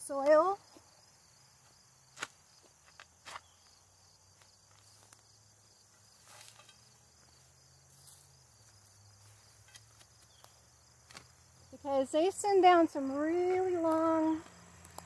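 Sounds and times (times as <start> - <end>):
insects chirping: 0.0 - 15.0
spade digging into soil: 6.2 - 7.0.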